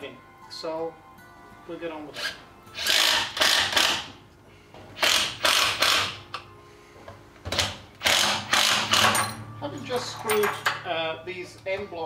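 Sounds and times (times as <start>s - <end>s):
cordless drill driving screws: 8.0s - 9.1s.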